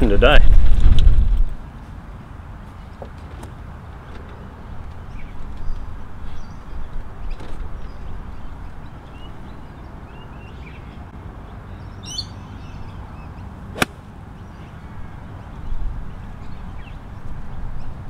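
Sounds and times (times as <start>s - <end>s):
wind rumble on microphone: 0.0s - 1.7s
bird chirps: 11.7s - 13.5s
golf club striking ball: 13.8s - 14.0s.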